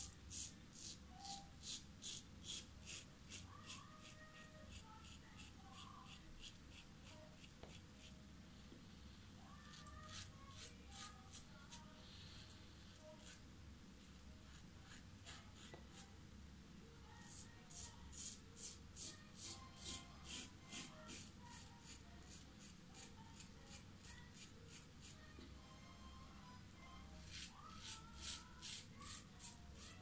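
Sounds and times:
razor scraping stubble: 9.6 - 11.8, 27.2 - 30.0.

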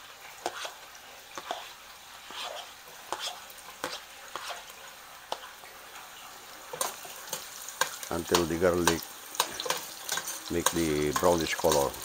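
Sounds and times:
garlic sizzling in oil: 0.0 - 12.0
metal spoon scraping and tapping: 1.4 - 1.7, 2.3 - 4.7, 6.7 - 12.0.

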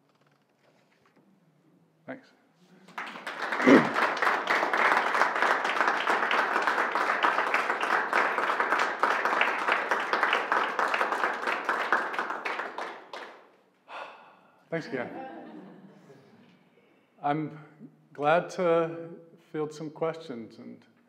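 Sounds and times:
audience applauding: 2.8 - 13.5.

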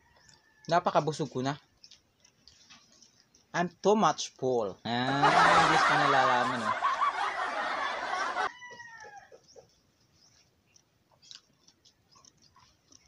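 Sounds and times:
rooster crowing: 5.2 - 9.4.

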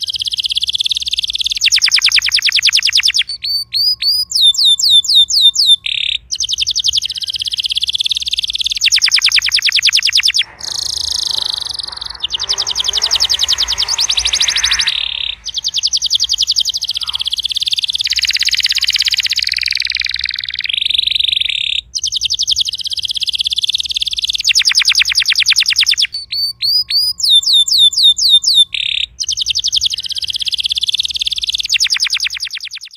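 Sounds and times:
canary singing trills: 0.0 - 32.9
falling whistled notes: 8.9 - 20.6.

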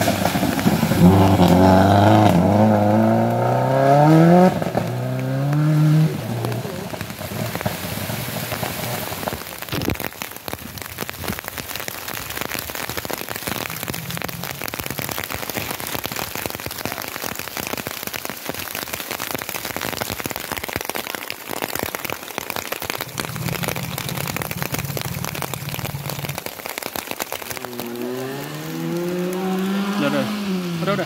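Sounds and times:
car engine humming: 0.0 - 9.3, 13.6 - 15.2, 23.0 - 26.5, 27.5 - 31.0
heavy rain falling: 0.0 - 31.0.

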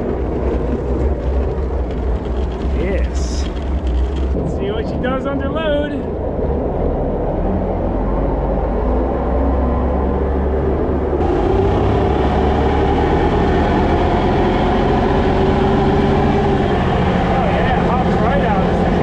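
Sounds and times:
boat engine running hard: 11.2 - 19.0.

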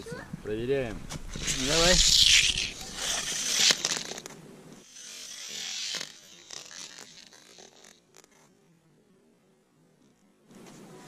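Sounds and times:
toy car rolling on plastic track: 1.3 - 8.5.

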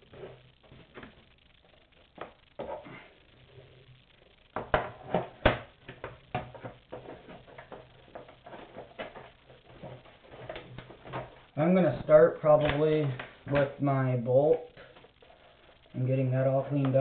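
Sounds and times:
hard objects knocking and clattering: 4.5 - 11.5.

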